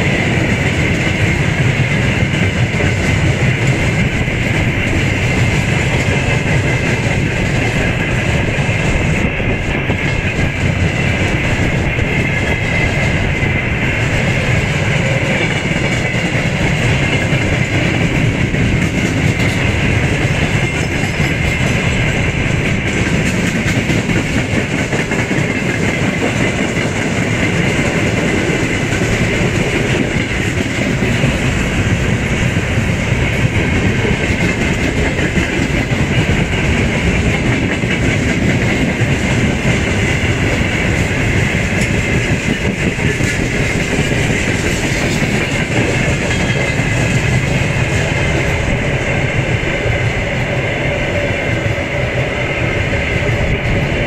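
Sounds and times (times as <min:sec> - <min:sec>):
train wheels rumbling and clattering: 0:00.0 - 0:54.0.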